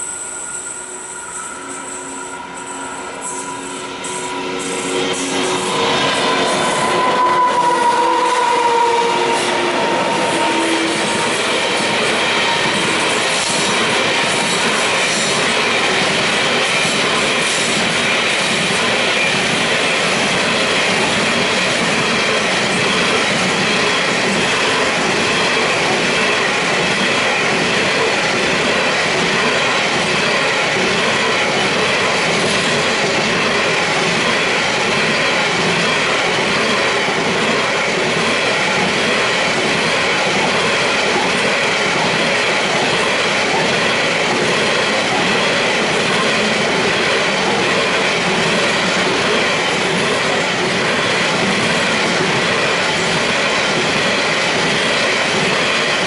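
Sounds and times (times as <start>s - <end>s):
high wheel squeal: 0.0s - 13.7s
train wheels rumbling on rails: 0.0s - 56.0s.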